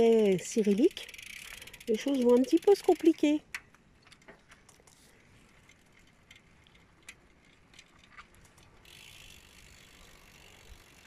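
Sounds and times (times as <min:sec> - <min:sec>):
freewheel ratchet ticking: 0:00.0 - 0:03.6, 0:08.8 - 0:11.0.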